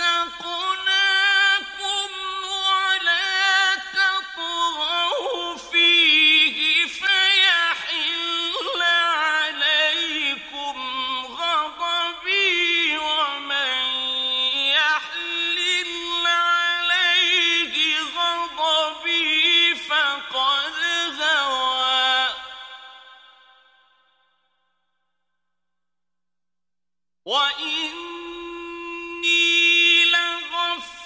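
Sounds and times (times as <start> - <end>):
man chanting melodically: 0.0 - 23.3, 27.3 - 31.0.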